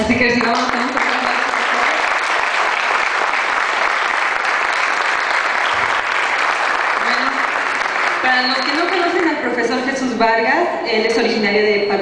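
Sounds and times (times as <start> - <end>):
audience applauding: 0.3 - 9.5.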